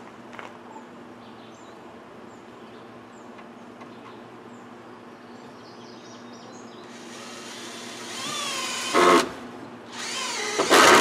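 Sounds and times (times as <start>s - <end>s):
cordless drill whining: 6.9s - 11.0s.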